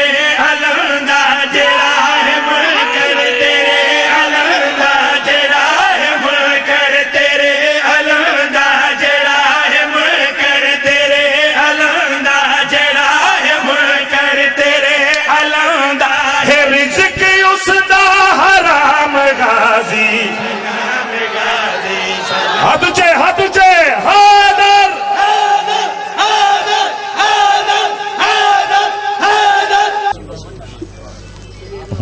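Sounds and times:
men chanting over loudspeakers: 0:00.0 - 0:30.2.

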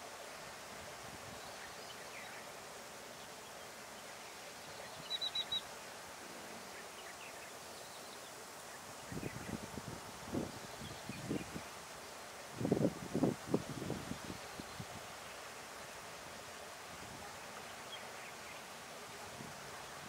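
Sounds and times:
outdoor background hiss: 0:00.0 - 0:20.0
small bird chirping: 0:04.7 - 0:05.7.

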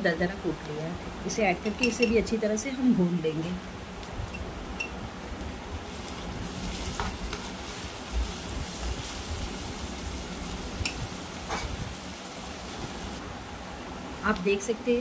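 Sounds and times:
onions sizzling in hot oil: 0:04.7 - 0:13.2.

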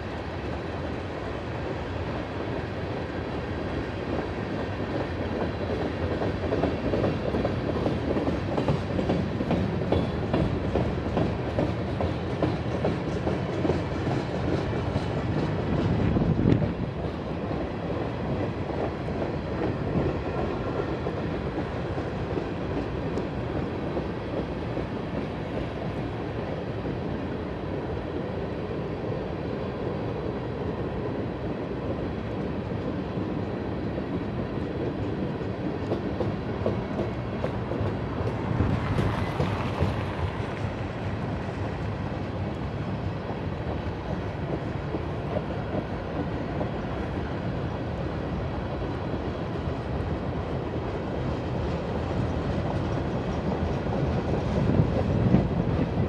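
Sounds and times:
train clickety-clack: 0:00.0 - 0:56.0
train wheels rumbling on track: 0:00.0 - 0:56.0.

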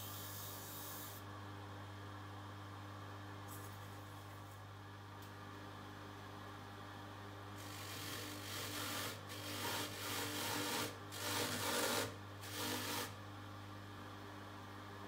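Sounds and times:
brush rasping on buffing wheel: 0:07.7 - 0:13.1.

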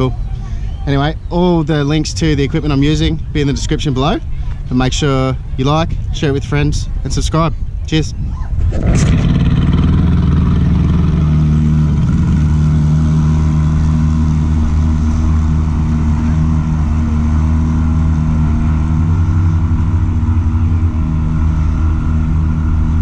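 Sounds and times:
outboard motor running: 0:08.6 - 0:23.0.

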